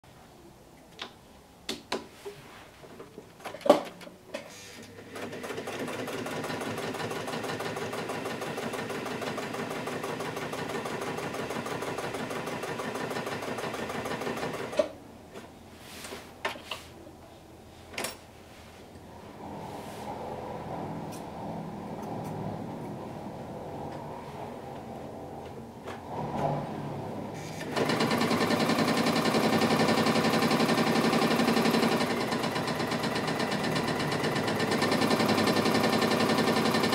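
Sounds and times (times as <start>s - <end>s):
sewing machine stitching: 4.8s - 14.9s, 27.4s - 36.9s.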